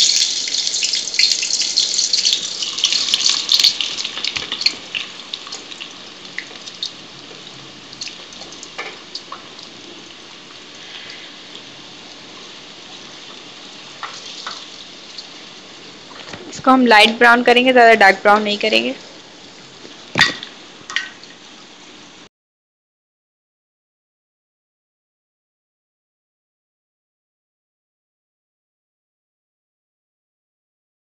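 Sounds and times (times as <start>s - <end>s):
onions sizzling in oil: 0.0s - 22.3s.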